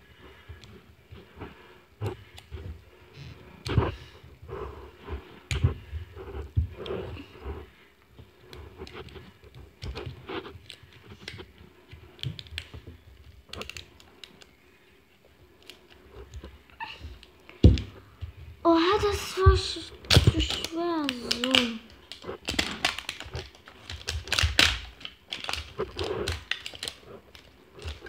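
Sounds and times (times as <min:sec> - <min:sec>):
fingernails picking at wrapping: 0:20.1 - 0:28.0.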